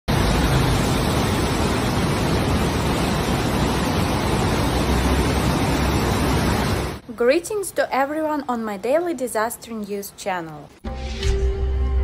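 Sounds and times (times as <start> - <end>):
mudflow rushing with low rumble: 0.1 - 7.0.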